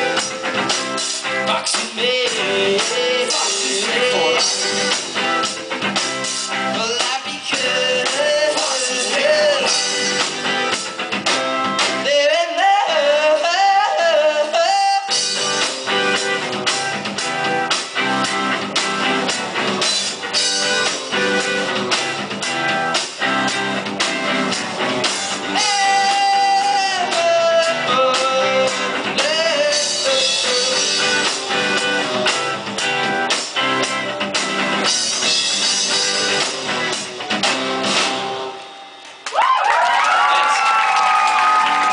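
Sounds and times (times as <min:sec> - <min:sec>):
lead vocals: 0:00.0 - 0:05.6, 0:06.2 - 0:10.8, 0:11.8 - 0:15.7, 0:25.1 - 0:32.3
rock band playing live: 0:00.0 - 0:41.9.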